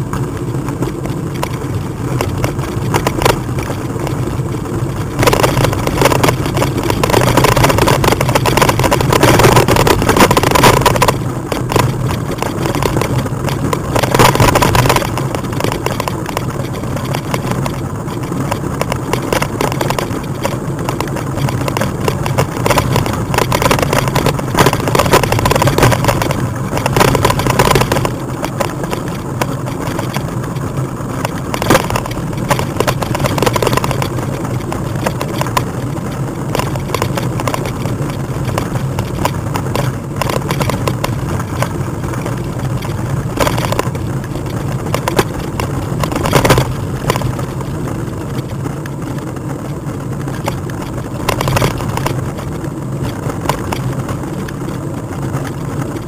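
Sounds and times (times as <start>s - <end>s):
rolling road noise: 0.0s - 56.0s
steady low hum: 0.0s - 56.0s.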